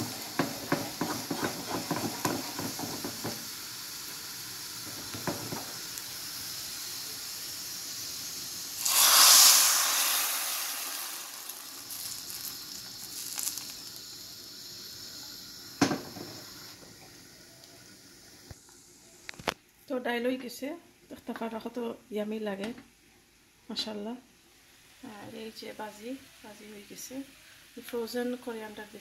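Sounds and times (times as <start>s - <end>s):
hot oil sizzling: 0.0s - 19.0s.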